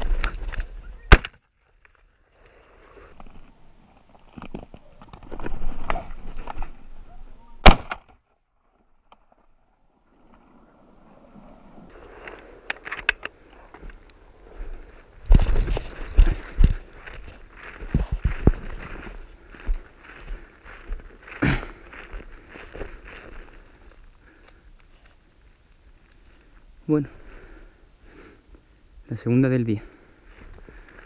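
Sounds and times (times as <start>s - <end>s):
rustling through dry stubble: 11.4s - 28.6s, 29.9s - 31.0s.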